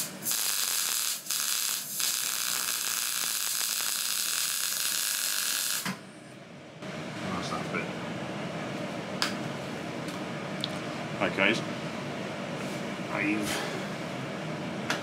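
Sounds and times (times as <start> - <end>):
welding arc crackling: 0.0 - 5.9.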